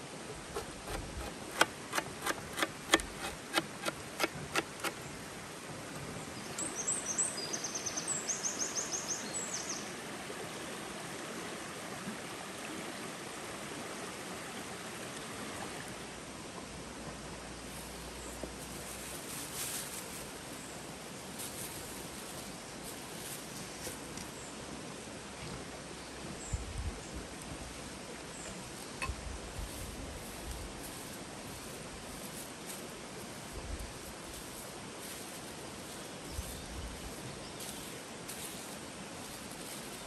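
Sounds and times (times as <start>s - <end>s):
knife chopping on metal tray: 0.6s - 5.0s.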